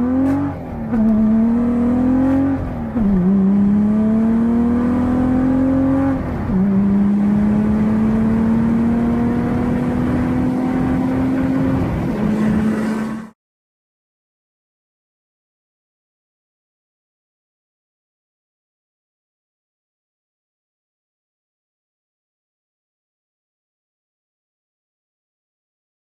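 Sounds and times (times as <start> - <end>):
car engine accelerating hard: 0.0 - 13.4.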